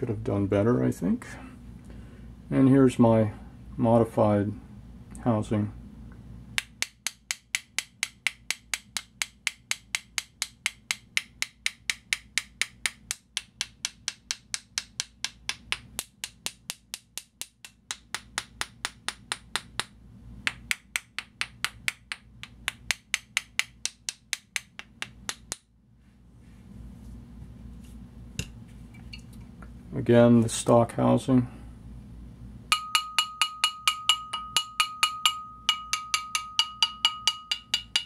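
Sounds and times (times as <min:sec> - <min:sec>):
wooden dowel tapping housing: 0:06.6 - 0:25.7, 0:32.7 - 0:38.0.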